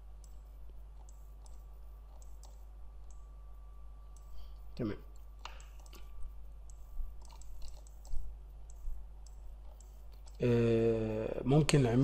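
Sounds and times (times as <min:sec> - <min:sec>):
low electrical hum: 0:00.0 - 0:12.0
computer mouse clicking: 0:00.2 - 0:03.3, 0:04.1 - 0:10.5.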